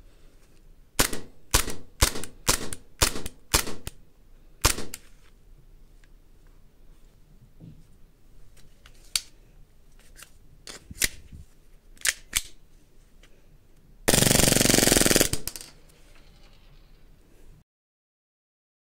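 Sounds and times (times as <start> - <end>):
full-auto airsoft burst: 1.0 - 4.0, 4.6 - 5.0, 14.1 - 15.6
airsoft pistol handling clicks: 12.0 - 12.6.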